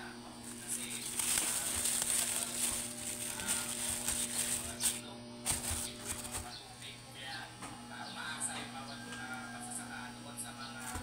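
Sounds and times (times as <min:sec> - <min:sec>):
plastic bag crinkling: 0:00.4 - 0:06.5.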